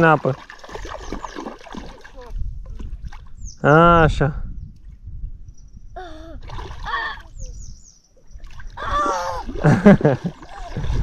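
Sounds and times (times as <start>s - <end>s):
water splashing: 0.0s - 3.4s, 6.4s - 7.4s, 8.3s - 11.0s.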